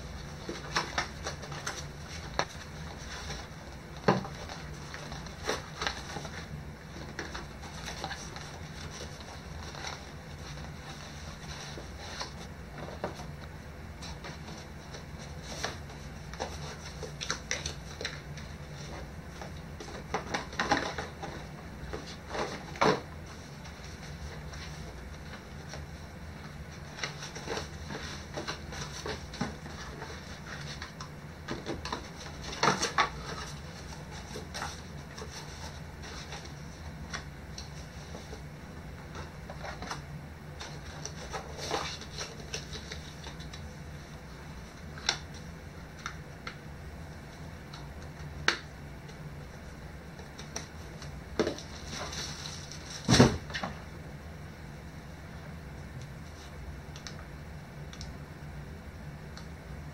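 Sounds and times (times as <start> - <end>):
paper packaging rustling: 0.0 - 13.3, 14.0 - 46.1
steady low hum: 0.0 - 59.9
cardboard knocks and rustles: 0.4 - 6.4, 51.3 - 53.8.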